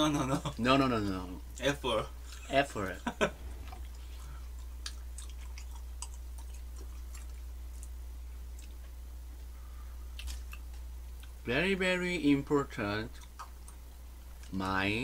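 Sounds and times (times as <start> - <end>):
steady low hum: 0.0 - 15.0
soft chewing: 0.5 - 2.6, 3.2 - 11.4, 13.0 - 14.9.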